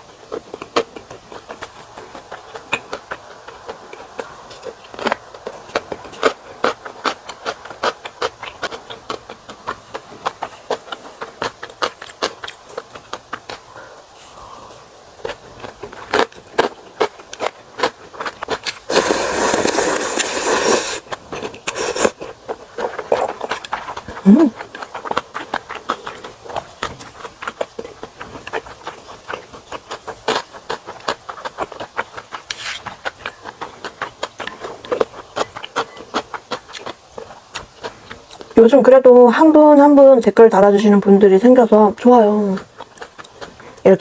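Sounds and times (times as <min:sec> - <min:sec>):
wet chewing and lip smacks: 0:00.0 - 0:38.6, 0:42.2 - 0:44.0
slurping noodles: 0:18.2 - 0:23.7.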